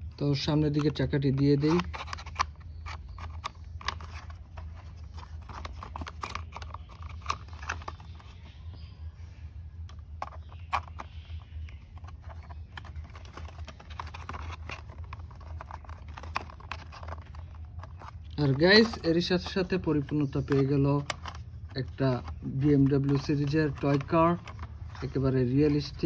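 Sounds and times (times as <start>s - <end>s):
plastic toy parts clicking: 0.7s - 4.4s.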